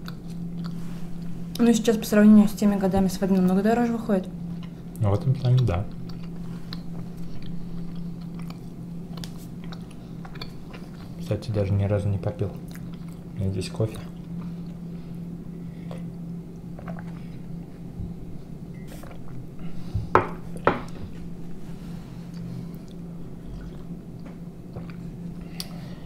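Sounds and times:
chewing: 0.0 - 1.6, 4.5 - 11.3, 12.5 - 13.4, 22.3 - 25.8
steady low hum: 0.0 - 26.0.

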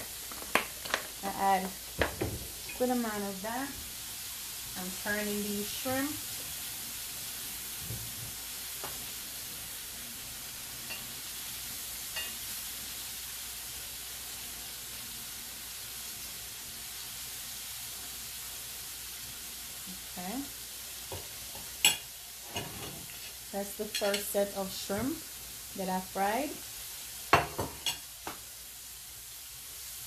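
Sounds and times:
shrimp sizzling in oil: 0.0 - 30.0.

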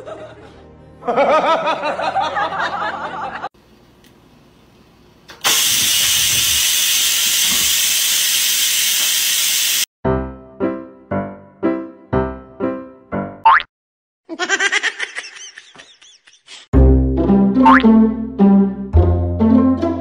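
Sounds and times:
rice cooker venting steam: 5.3 - 9.9.

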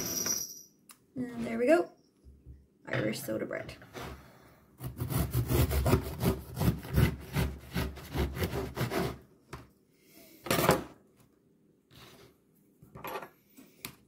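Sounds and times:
knife sawing through crusty bread: 4.8 - 9.2.

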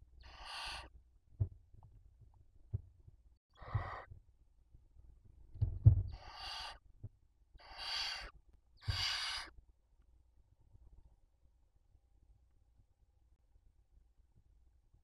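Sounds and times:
owl hissing screech calls: 0.2 - 0.9, 3.6 - 4.1, 6.1 - 6.8, 7.6 - 9.6.

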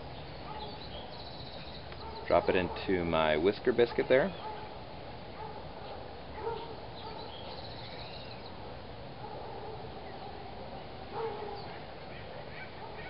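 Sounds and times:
birds calling: 0.0 - 13.0
steady low background noise: 0.0 - 13.0
bird trill: 0.1 - 2.5, 6.5 - 8.6.

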